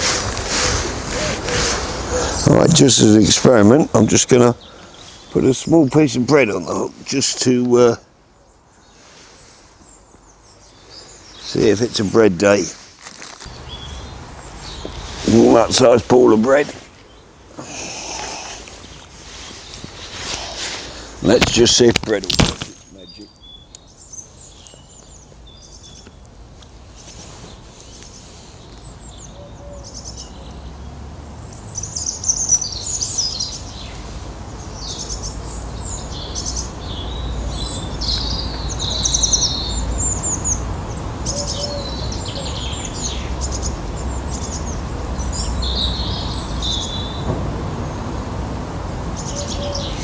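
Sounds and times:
songbirds chirping: 0.0 - 50.0
steady low rumble: 47.1 - 49.3.

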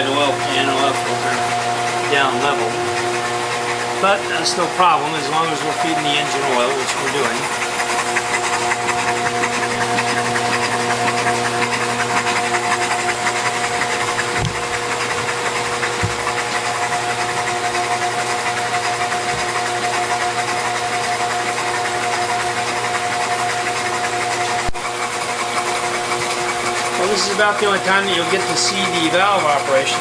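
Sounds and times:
engine turning over with whine: 0.0 - 30.0
valvetrain clatter: 0.0 - 30.0
soft low thumps: 15.9 - 16.4.

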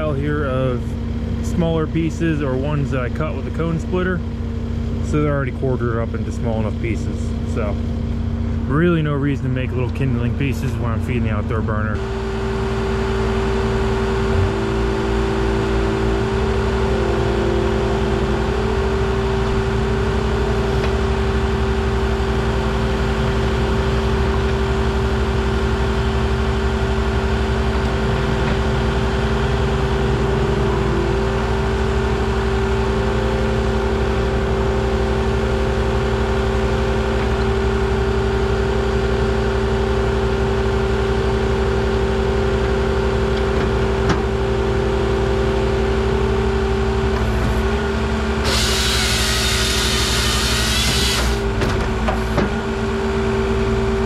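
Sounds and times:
diesel engine running: 0.0 - 54.0
steady tone: 12.0 - 20.0.

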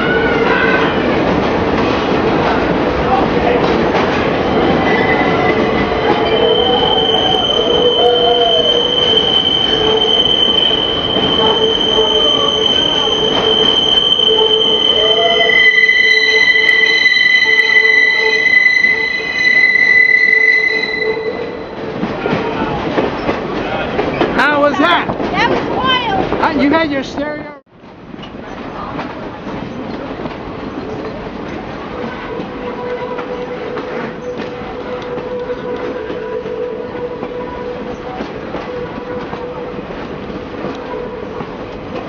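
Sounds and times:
rumble of train cars: 0.0 - 42.0
train wheels squealing on rails: 4.5 - 24.8.

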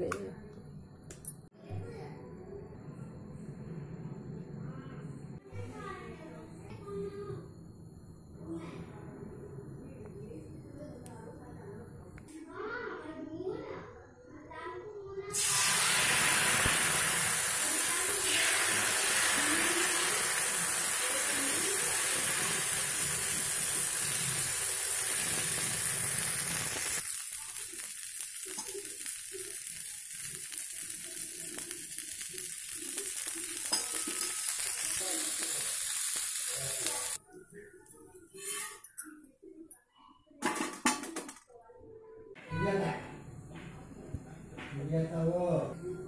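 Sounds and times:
batter sizzling on griddle: 15.3 - 37.2.

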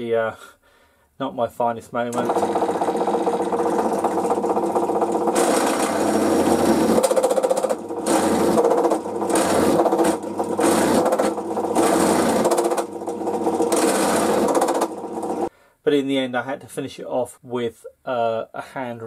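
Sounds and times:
drill bit cutting metal: 2.1 - 15.5
drill press motor hum: 2.1 - 15.5.

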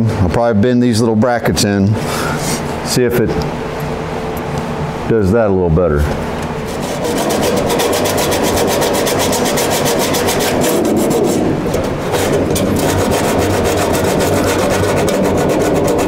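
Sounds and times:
sandpaper scraping: 6.7 - 16.0.

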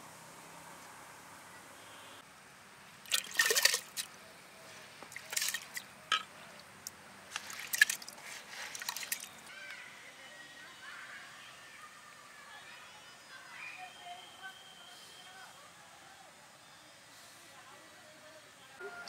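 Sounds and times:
water splashing and dripping: 3.0 - 4.1, 5.1 - 9.5.

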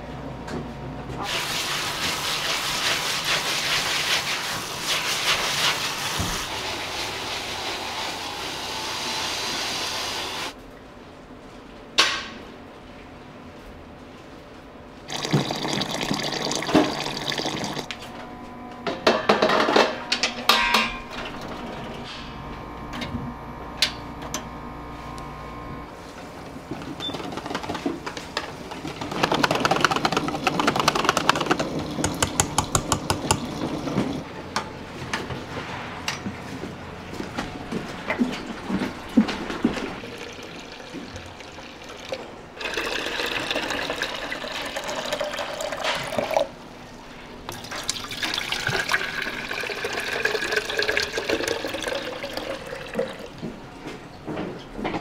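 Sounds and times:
water pouring into a plastic jug: 15.1 - 17.9, 39.7 - 46.5, 47.5 - 53.3
utensils clattering: 18.8 - 22.3
utensil working in a metal bowl: 26.7 - 34.3.

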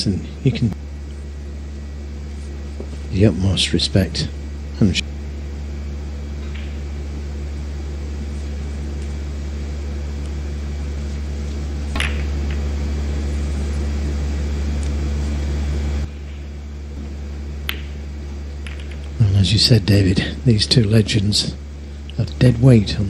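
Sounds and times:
low arena hum: 0.0 - 23.0
snooker balls clicking: 11.9 - 12.7, 17.6 - 18.0, 18.6 - 19.2.

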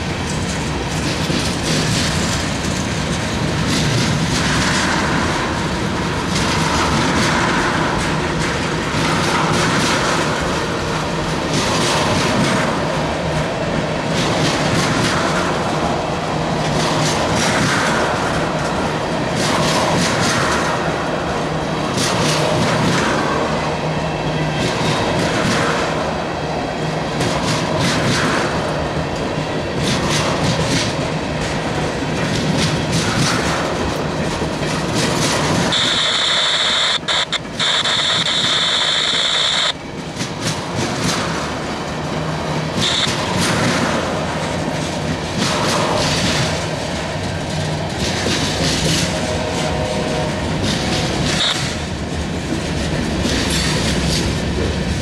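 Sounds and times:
train wheels clacking on rail joints: 0.0 - 55.0
high-pitched squeal: 35.7 - 39.8.

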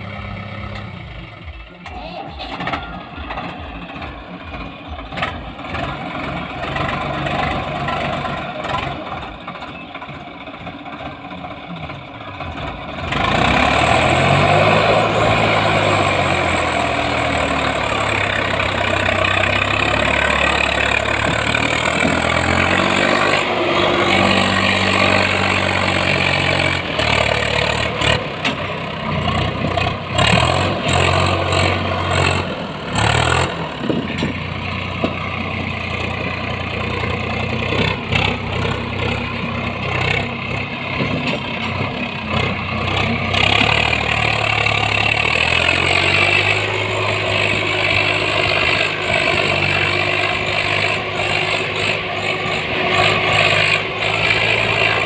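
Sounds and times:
tractor diesel engine revving: 0.0 - 55.0.

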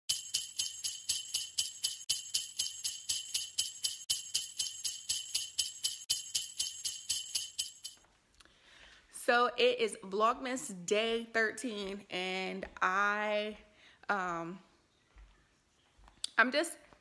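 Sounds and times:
sleigh bells shaken: 0.1 - 8.0.

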